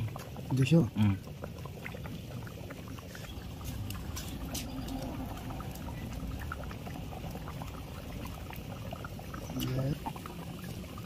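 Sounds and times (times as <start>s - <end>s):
curry bubbling with pops: 0.0s - 11.0s.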